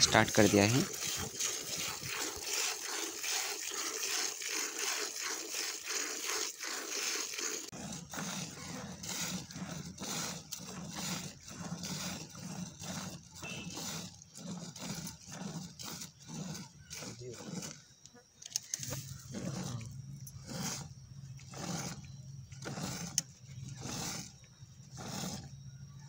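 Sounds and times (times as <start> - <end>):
milk squirting into can: 0.0 - 17.8.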